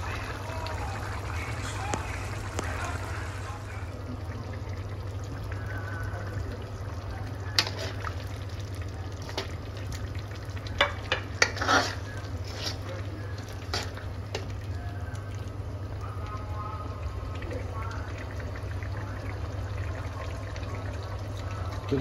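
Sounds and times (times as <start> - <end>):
gravy bubbling: 0.0 - 22.0
ladle scraping iron wok: 7.6 - 8.0, 10.8 - 14.4.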